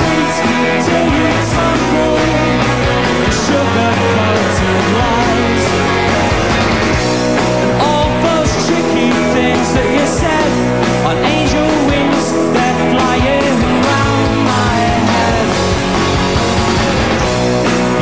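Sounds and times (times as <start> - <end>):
person singing: 0.0 - 6.1, 7.7 - 15.7
bass guitar: 0.0 - 18.0
guitars: 0.0 - 18.0
steady drum beat: 0.0 - 18.0.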